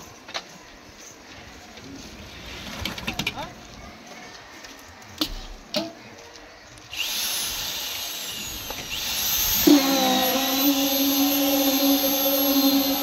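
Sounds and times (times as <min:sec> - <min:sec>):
concrete vibrator motor whining: 0:06.9 - 0:13.0.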